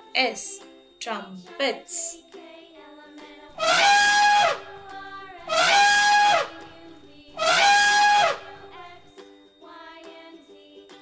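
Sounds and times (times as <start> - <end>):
elephant trumpeting: 3.6 - 8.8.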